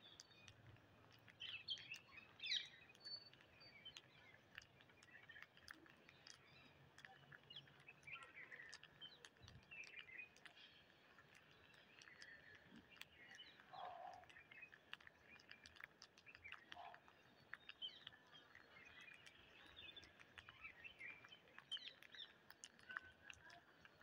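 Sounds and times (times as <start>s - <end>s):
beaks pecking on concrete: 0.0s - 24.0s
faint bird chirps: 6.0s - 15.7s.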